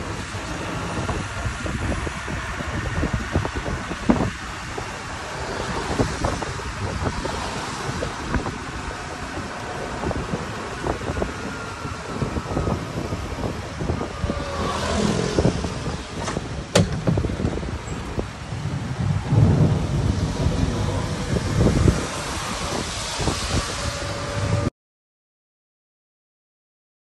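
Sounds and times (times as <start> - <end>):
rumble of wheels: 0.0 - 24.7
wind buffeting microphone: 0.0 - 24.7
rattles and knocks: 16.2 - 17.6.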